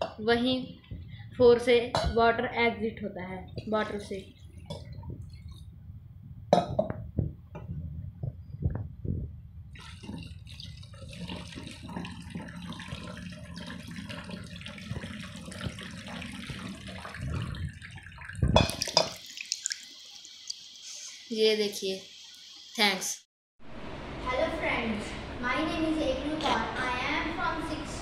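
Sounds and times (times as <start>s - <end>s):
water pouring and splashing: 9.1s - 22.8s.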